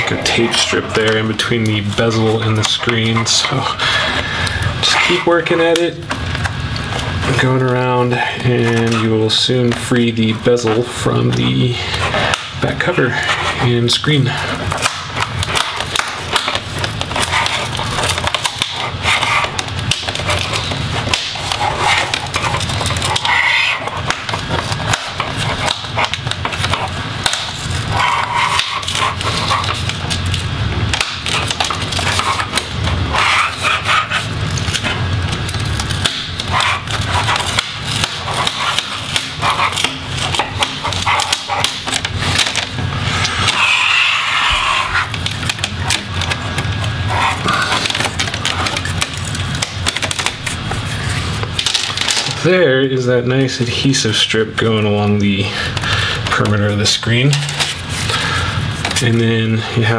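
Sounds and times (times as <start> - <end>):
rubbing against table: 14.4 - 27.0, 27.6 - 30.1, 31.3 - 35.0, 36.4 - 49.3
adhesive tape pulling away: 14.7 - 52.4.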